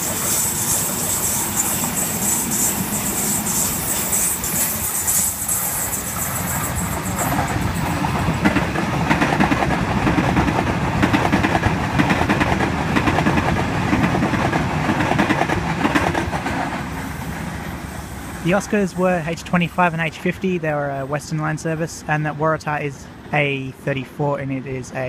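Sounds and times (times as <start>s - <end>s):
train rolling past: 0.0s - 25.0s
wheels clicking over rail joints: 3.8s - 16.8s.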